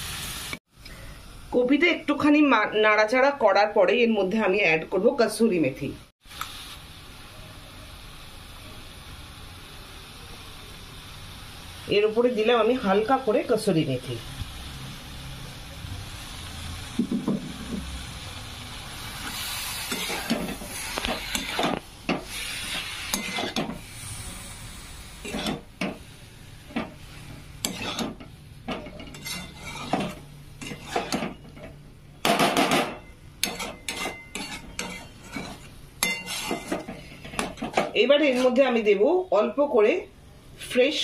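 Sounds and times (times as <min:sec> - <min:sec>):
frying sizzle: 0:00.0 - 0:41.0
metal spatula scraping a pan: 0:19.3 - 0:26.0, 0:26.6 - 0:31.8, 0:32.6 - 0:38.8.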